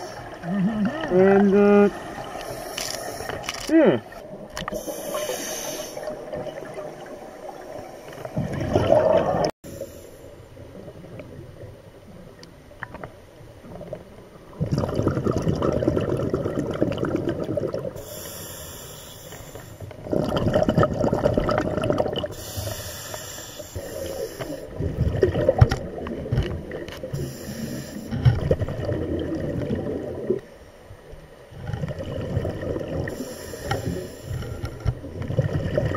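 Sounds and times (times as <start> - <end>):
diver breathing through regulator: 4.7 - 6.2, 18.0 - 19.9, 22.3 - 24.7, 27.1 - 28.3, 33.1 - 34.8
exhaled bubbles rushing: 6.0 - 9.5, 13.6 - 18.0, 20.0 - 22.4, 24.7 - 26.9, 28.4 - 30.4, 31.6 - 33.3, 35.0 - 35.9.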